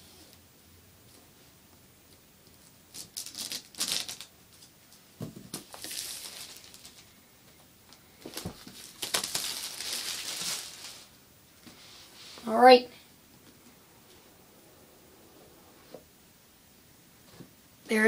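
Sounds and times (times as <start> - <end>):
plastic shrink-wrap crinkling: 2.9 - 4.3, 5.5 - 7.1, 8.2 - 11.2.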